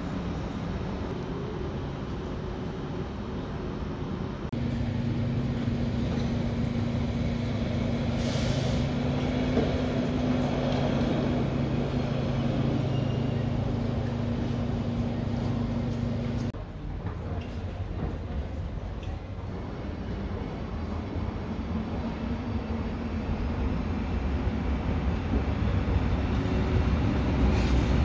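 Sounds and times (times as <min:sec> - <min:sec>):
station ambience: 0:00.0 - 0:27.4
locomotive engine humming: 0:00.0 - 0:28.0
hiss of air: 0:08.0 - 0:09.1, 0:27.3 - 0:28.0.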